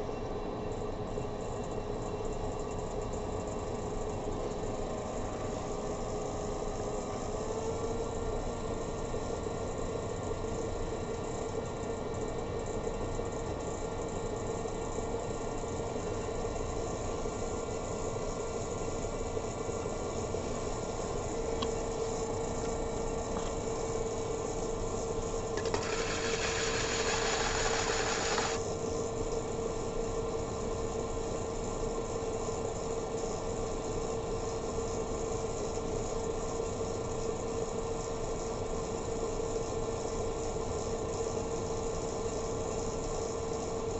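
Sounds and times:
pottery wheel motor humming: 0:17.1 - 0:28.9
hiss: 0:25.6 - 0:28.6.

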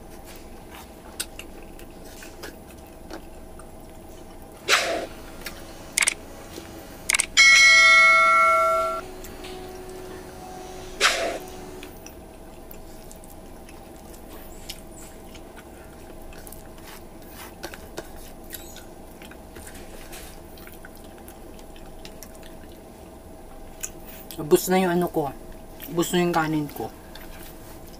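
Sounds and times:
chewing: 0:00.0 - 0:04.6, 0:12.0 - 0:24.4, 0:26.7 - 0:27.9
wet eating clicks and smacks: 0:00.7 - 0:04.5, 0:12.0 - 0:24.4
notification bell chime: 0:07.4 - 0:10.6.

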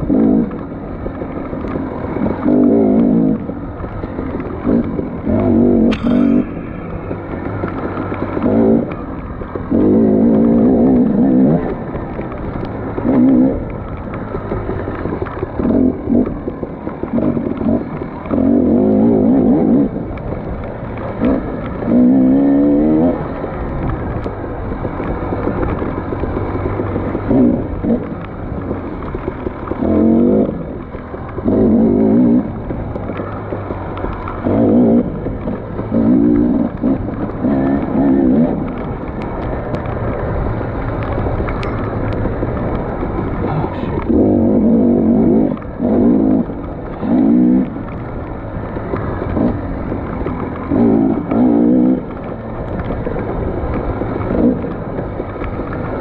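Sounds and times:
dirt bike engine revving: 0:00.0 - 0:00.6, 0:01.9 - 0:11.9, 0:12.8 - 0:13.7, 0:14.3 - 0:20.2, 0:21.0 - 0:23.5, 0:29.6 - 0:38.8, 0:42.8 - 0:47.9, 0:48.6 - 0:52.1.

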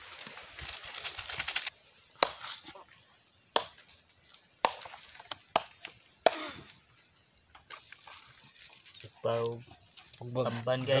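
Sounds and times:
knife chopping on wood: 0:02.2 - 0:02.6, 0:05.5 - 0:06.6.

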